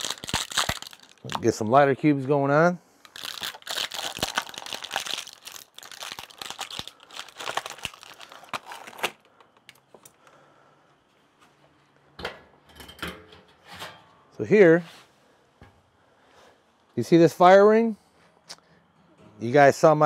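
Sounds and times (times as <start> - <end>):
packaging crinkling and tearing: 0.0 - 1.6, 3.0 - 9.7.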